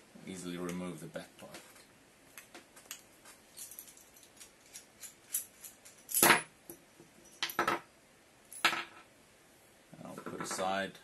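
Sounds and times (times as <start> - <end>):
small metal parts clicking: 2.8 - 7.6.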